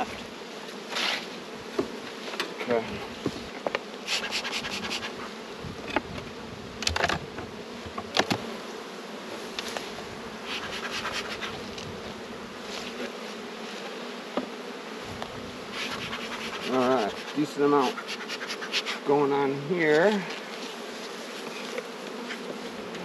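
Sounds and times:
honey bees humming: 0:00.0 - 0:23.0
wooden hive frames clicking: 0:01.7 - 0:02.6, 0:05.8 - 0:08.6, 0:21.4 - 0:23.0.

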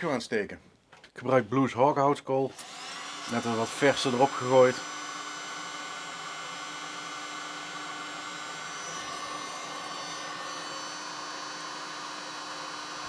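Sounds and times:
electric charcoal lighter blowing: 0:02.5 - 0:13.0.

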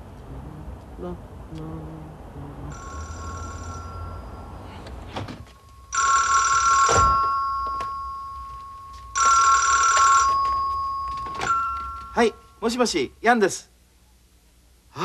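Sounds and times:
telephone ringing: 0:02.7 - 0:04.6, 0:05.5 - 0:12.5.

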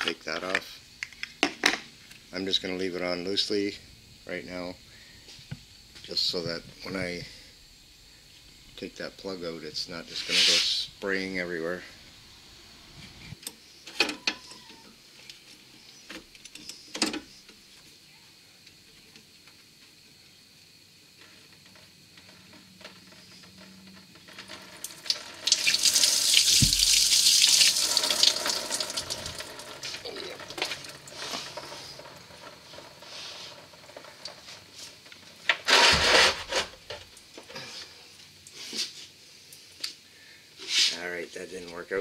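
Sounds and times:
liquid gushing and splashing: 0:24.9 - 0:31.6.

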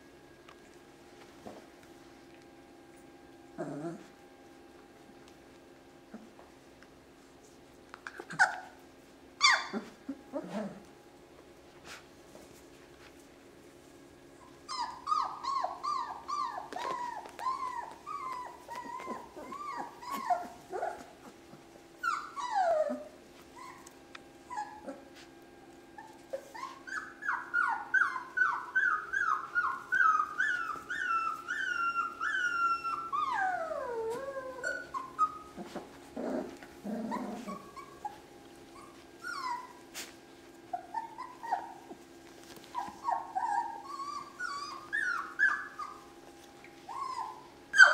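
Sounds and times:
puppies whining and yipping: 0:03.5 - 0:04.2, 0:08.1 - 0:11.0, 0:14.3 - 0:47.9.

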